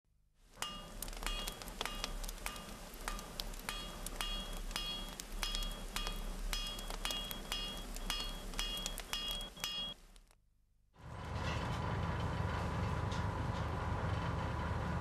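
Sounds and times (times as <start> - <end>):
low mains hum: 0.5 - 10.3
hammer striking iron on anvil: 0.6 - 10.0.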